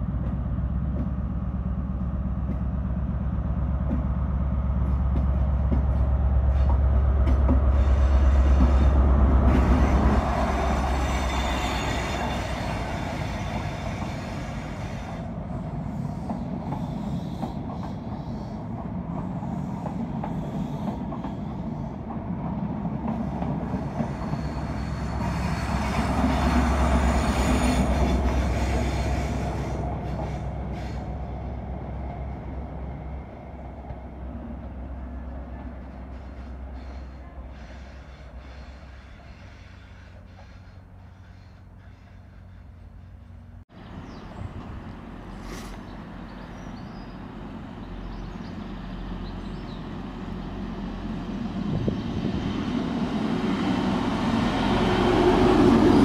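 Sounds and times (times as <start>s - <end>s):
diesel train engine running loudly: 0.0s - 56.0s
train wheel squeal: 7.7s - 15.3s, 23.2s - 31.2s, 35.9s - 43.4s.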